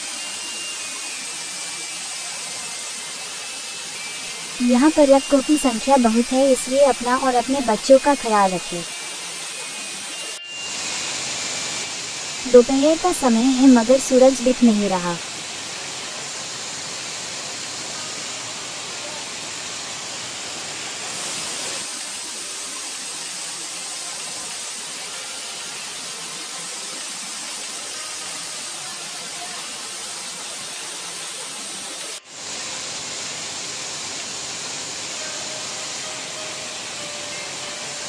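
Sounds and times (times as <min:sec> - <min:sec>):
waterfall rushing over rocks: 0:15.3 - 0:38.0.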